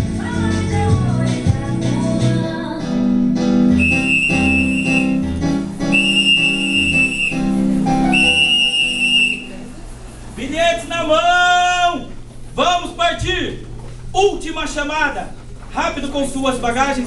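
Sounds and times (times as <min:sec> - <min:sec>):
music playing: 0:00.0 - 0:10.0
high steady whistle: 0:03.8 - 0:05.2, 0:05.9 - 0:09.7.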